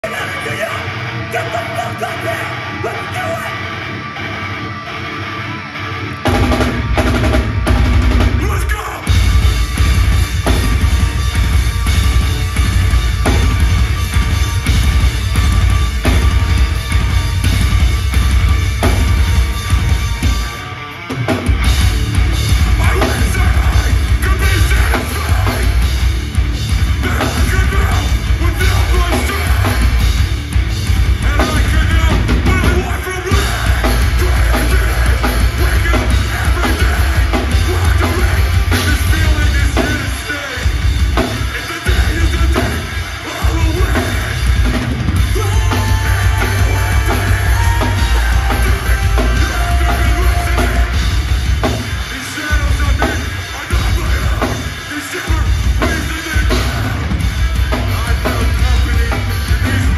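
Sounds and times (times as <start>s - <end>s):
distorted electric guitars: 0.0s - 59.9s
pounding drum kit: 6.2s - 59.9s
shouted vocals: 22.7s - 25.8s, 31.2s - 40.7s, 45.2s - 51.0s.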